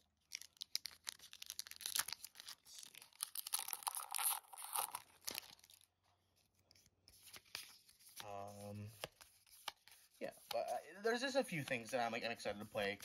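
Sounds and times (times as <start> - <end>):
foil wrapper tearing and crinkling: 0.2 - 5.9.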